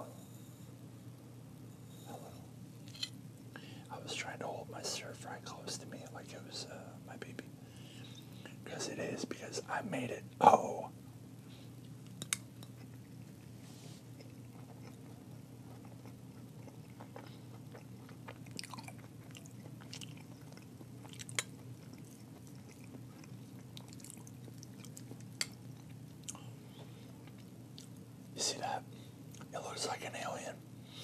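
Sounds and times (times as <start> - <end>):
steady low hum: 0.0 - 31.0
chewing with wet mouth clicks: 11.8 - 13.4, 14.2 - 26.5, 27.2 - 28.0, 29.3 - 29.5.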